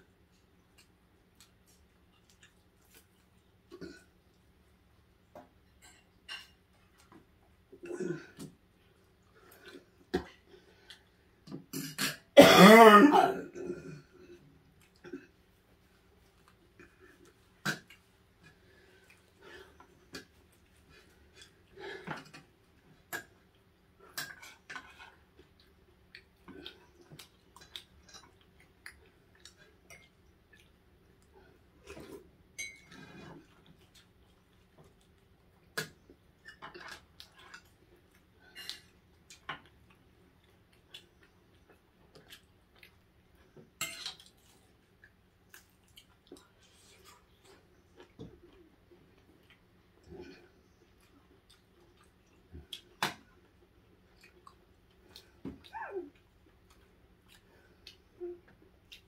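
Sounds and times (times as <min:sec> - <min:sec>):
tableware clicks and clatter: 0:32.6 - 0:33.0.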